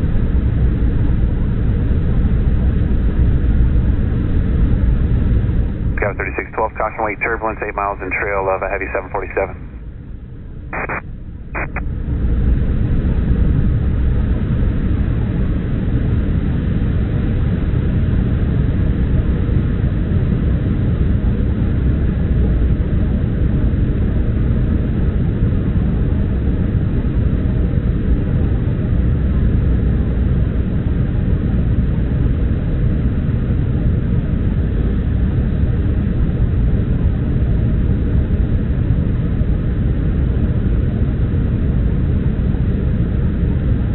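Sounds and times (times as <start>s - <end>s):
airliner jet engines rumbling: 0.0s - 43.9s
airflow over fuselage: 5.2s - 11.8s
short blips: 10.8s - 11.0s, 11.6s - 11.8s.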